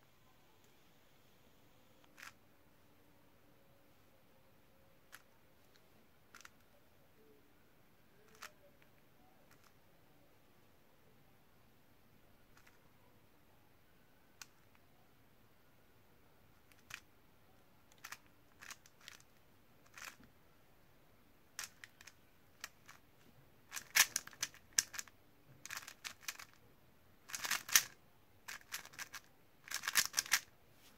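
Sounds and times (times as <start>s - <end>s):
puzzle cube clacking turns: 2.0s - 2.4s, 5.1s - 5.3s, 6.3s - 6.7s, 8.2s - 8.7s, 9.5s - 9.8s, 14.4s - 14.8s, 16.6s - 17.1s, 17.9s - 20.3s, 21.6s - 23.0s, 23.7s - 26.6s, 27.2s - 30.5s.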